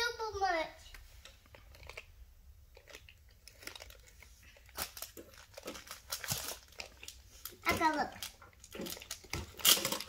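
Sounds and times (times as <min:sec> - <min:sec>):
plastic toy pieces clicking: 0:07.7 - 0:10.0.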